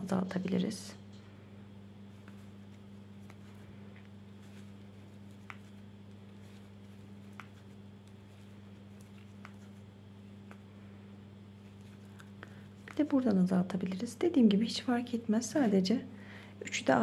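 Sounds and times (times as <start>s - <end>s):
steady low hum: 0.0s - 17.0s
yarn handling sounds: 2.0s - 15.0s.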